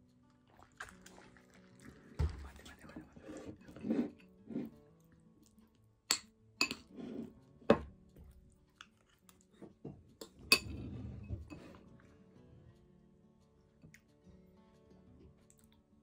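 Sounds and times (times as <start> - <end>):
spoon clinking on ceramic plate: 6.1 - 7.8, 10.2 - 11.8.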